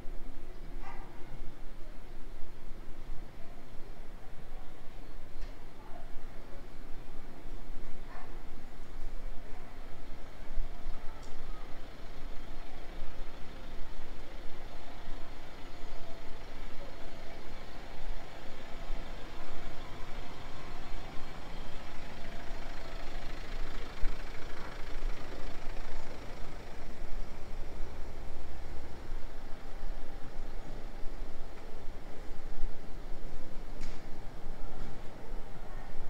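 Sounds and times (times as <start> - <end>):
vehicle engine running: 9.9 - 36.0.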